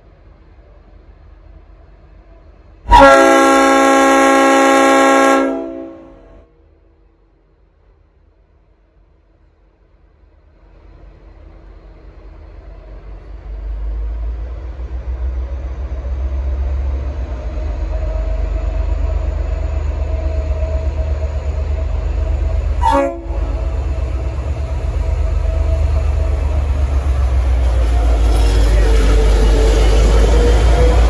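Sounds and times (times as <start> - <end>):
diesel locomotive engine rumble: 0.0 - 31.0
locomotive horn toot: 2.9 - 6.4, 22.8 - 23.6.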